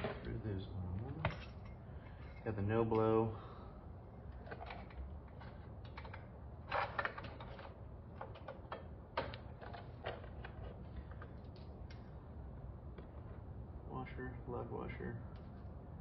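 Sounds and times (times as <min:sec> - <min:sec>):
metal hardware rattling: 0:01.2 - 0:03.2.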